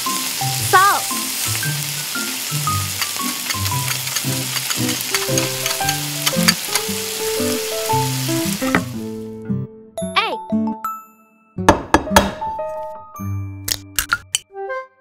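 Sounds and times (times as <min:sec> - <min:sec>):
hot oil sizzling in a wok: 0:00.0 - 0:09.3.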